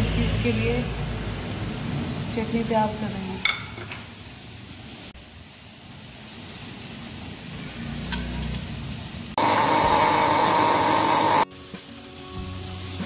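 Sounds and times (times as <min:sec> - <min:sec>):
frying sizzle: 0:00.0 - 0:13.0
electric grinder motor running: 0:09.4 - 0:11.4.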